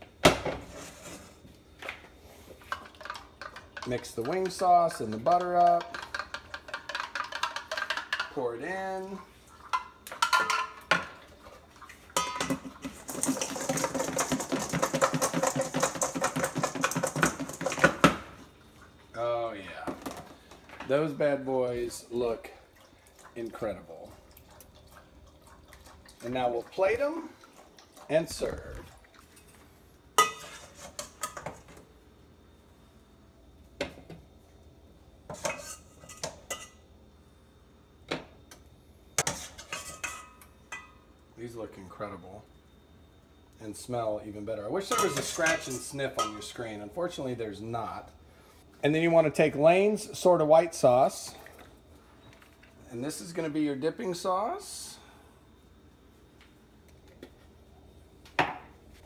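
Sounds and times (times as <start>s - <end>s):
dishes clinking on a metal bowl: 9.7s - 11.2s, 12.1s - 17.9s, 30.2s - 31.6s, 39.2s - 41.0s, 44.8s - 46.6s
chicken wings rattling in a bowl: 12.6s - 18.0s
metal spoon clinking in bowl: 44.9s - 46.4s.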